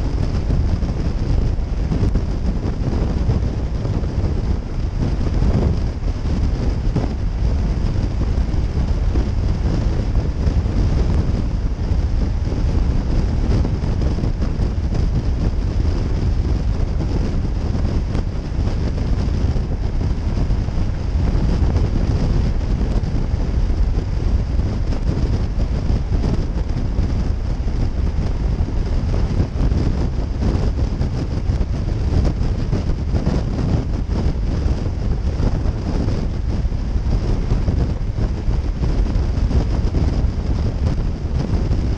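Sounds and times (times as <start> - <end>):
wind rushing over microphone: 0.0 - 41.9.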